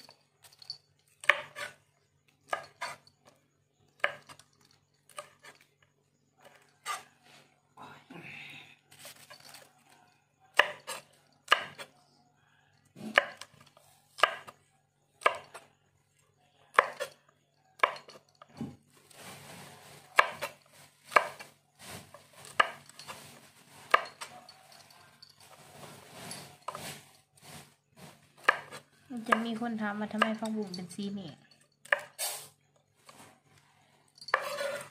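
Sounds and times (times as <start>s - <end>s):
knife chopping on cutting board: 1.2s - 1.8s, 14.2s - 14.6s, 20.2s - 21.5s, 28.4s - 29.4s
rustling of greens: 8.9s - 10.0s, 18.9s - 29.2s.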